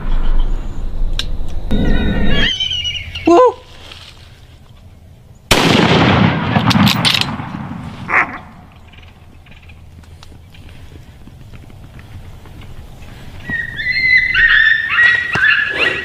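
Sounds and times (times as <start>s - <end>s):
rifle shot echoing: 5.5s - 8.2s.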